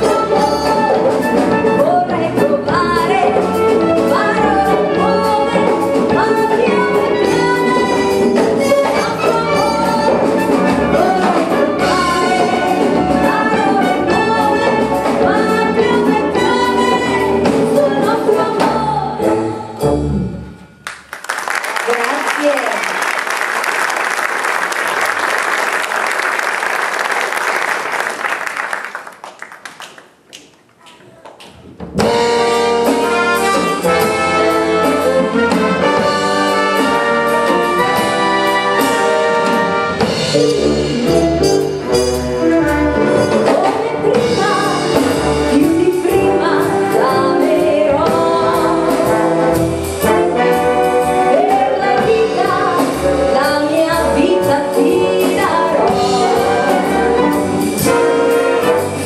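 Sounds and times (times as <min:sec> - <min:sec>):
woman singing: 0:00.0 - 0:19.6, 0:42.3 - 0:49.6, 0:50.3 - 0:57.4
jazz band playing: 0:00.0 - 0:22.7, 0:31.7 - 0:59.0
audience applause: 0:20.8 - 0:31.5.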